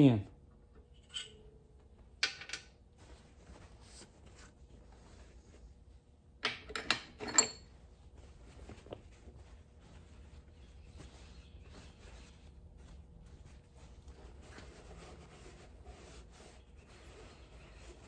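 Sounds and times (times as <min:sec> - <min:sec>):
metal tool parts clinking: 0:06.4 - 0:07.7.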